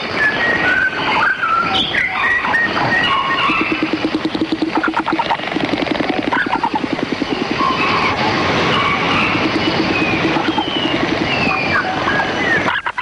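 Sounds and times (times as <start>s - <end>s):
bird bill clattering: 2.8s - 12.1s.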